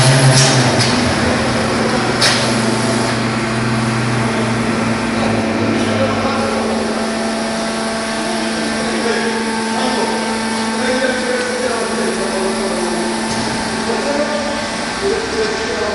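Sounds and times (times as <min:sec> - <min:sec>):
machine mechanical hum: 0:00.0 - 0:15.9.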